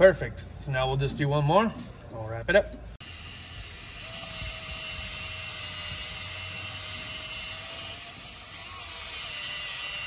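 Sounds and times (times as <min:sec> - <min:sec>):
cordless drill drilling metal: 0:03.0 - 0:10.0.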